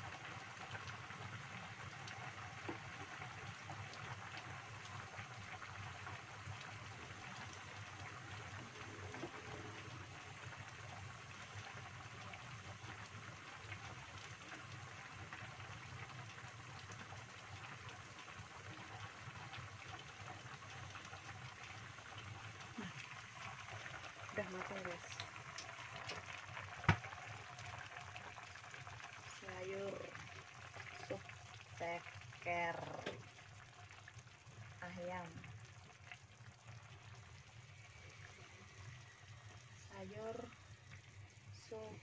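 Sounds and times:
soup bubbling with pops: 0:00.1 - 0:39.7.

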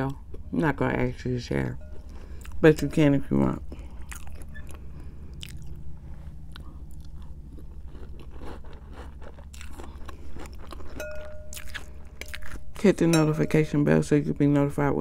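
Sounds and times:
chewing crunchy cereal: 0:03.7 - 0:13.0
spoon clinking in glass bowl: 0:11.0 - 0:11.7.

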